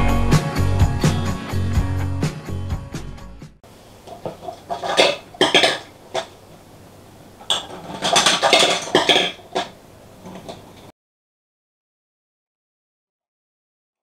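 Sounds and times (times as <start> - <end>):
plastic marble run clattering: 4.1 - 6.4, 7.5 - 10.9.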